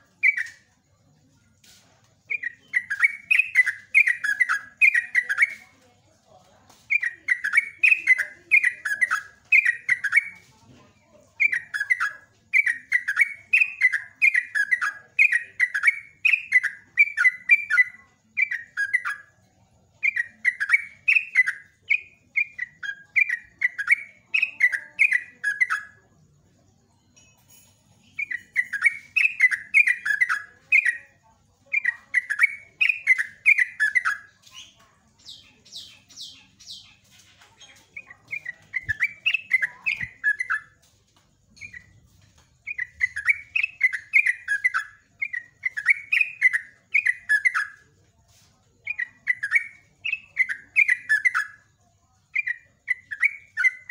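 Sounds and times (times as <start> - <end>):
bird singing bubbling phrases: 37.8 - 40.8.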